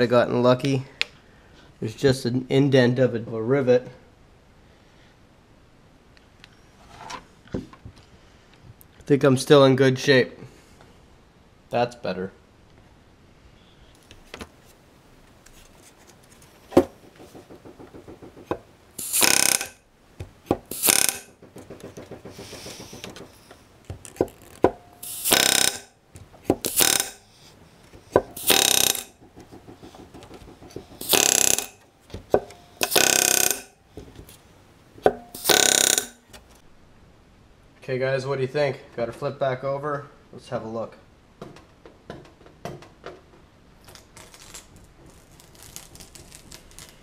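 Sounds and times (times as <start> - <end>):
rapid tapping: 16.7 - 25.7, 27.8 - 33.6
pneumatic rivet gun hammering: 16.7 - 34.1, 35.0 - 36.5.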